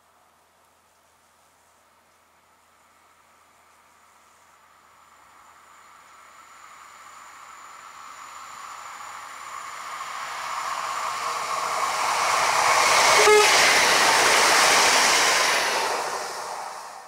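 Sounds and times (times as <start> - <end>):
train passing at speed: 2.3 - 17.0
train horn blast: 13.1 - 13.9.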